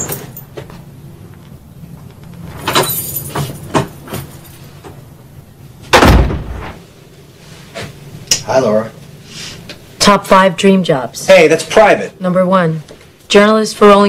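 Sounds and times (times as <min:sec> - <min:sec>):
door shutting thump: 0:05.9 - 0:06.8.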